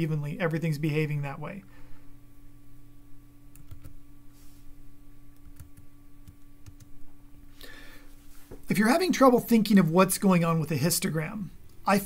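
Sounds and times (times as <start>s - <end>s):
low electrical hum: 0.0s - 12.0s
computer keyboard clicks: 3.5s - 4.0s, 5.4s - 6.9s.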